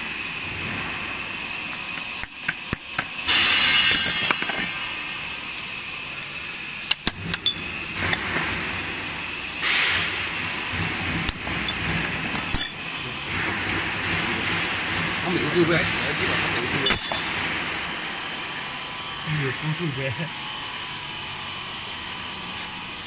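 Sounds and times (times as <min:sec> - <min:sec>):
hammer clinking on metal: 0:12.5 - 0:13.1, 0:16.8 - 0:17.3.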